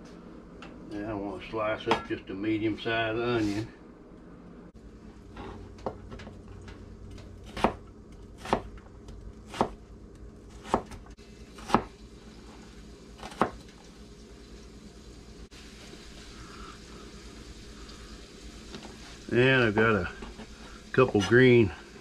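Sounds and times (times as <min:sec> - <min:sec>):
knife chopping on cutting board: 0:07.2 - 0:09.8, 0:10.5 - 0:11.9, 0:13.2 - 0:13.6.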